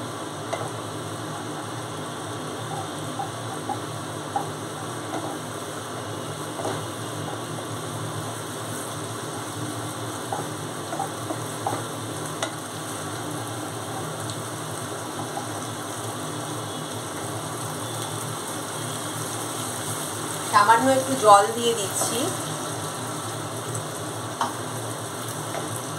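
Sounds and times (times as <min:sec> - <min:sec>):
food sizzling in a pan: 0:00.0 - 0:25.9
spatula tapping and scraping pan: 0:00.5 - 0:00.8, 0:02.6 - 0:05.5, 0:06.5 - 0:07.4, 0:10.2 - 0:12.6, 0:15.1 - 0:15.7, 0:25.5 - 0:25.8.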